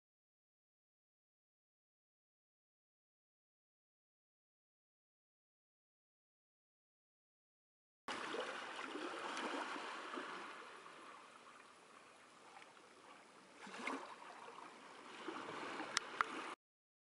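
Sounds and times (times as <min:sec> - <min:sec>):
seawater trickling and gurgling: 0:08.1 - 0:16.6.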